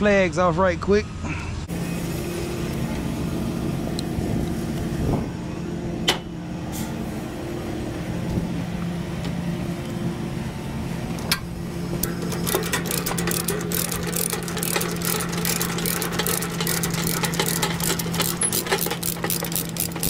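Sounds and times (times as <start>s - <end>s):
diesel engine idling: 1.1s - 20.0s
sharp metallic clicks: 11.3s - 20.0s.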